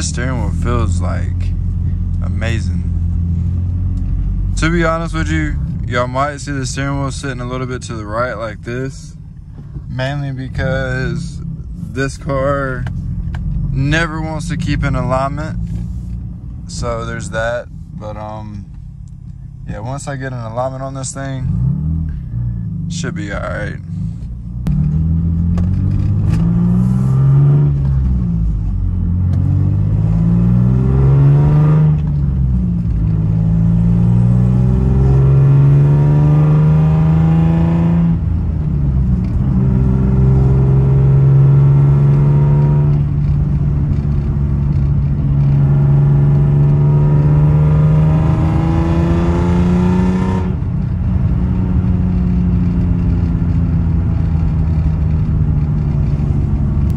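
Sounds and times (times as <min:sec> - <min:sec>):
car engine accelerating through gears: 0:20.7 - 0:56.9.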